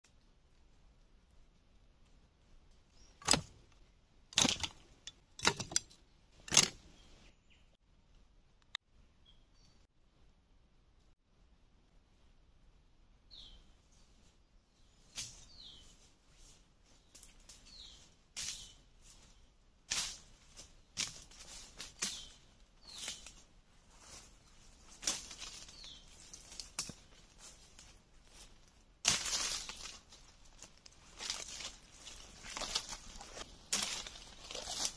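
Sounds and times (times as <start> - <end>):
rustling sticks and dry leaves: 1.6 - 7.3, 15.0 - 34.9.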